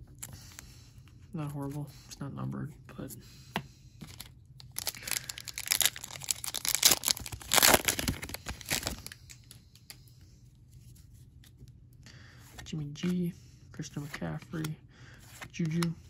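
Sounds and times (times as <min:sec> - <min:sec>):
card pack wrapper tearing: 0:04.1 - 0:09.2.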